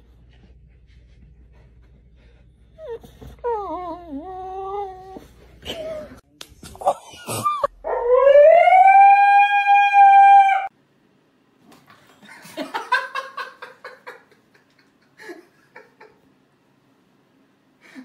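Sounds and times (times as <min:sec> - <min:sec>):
animal whimpering: 0:02.8 - 0:05.3
dog howling: 0:07.8 - 0:10.7.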